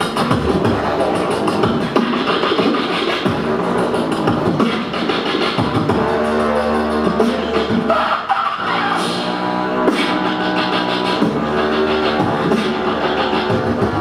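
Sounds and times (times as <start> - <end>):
beatboxing vocal drum beats: 0.0 - 14.0.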